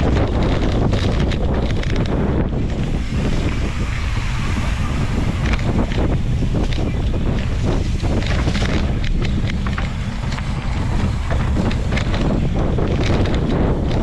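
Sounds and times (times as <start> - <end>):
bike rattling over bumps: 0.0 - 14.0
wind buffeting microphone: 0.0 - 14.0
tyres crunching over dirt and rocks: 5.5 - 14.0.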